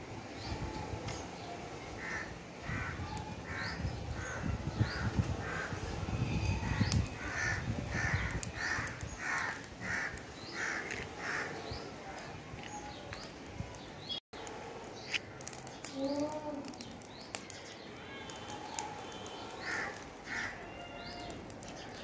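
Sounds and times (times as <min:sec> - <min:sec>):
burning leaves crackling: 0:00.0 - 0:22.0
crow cawing: 0:02.0 - 0:04.4, 0:07.2 - 0:11.6, 0:19.6 - 0:20.9.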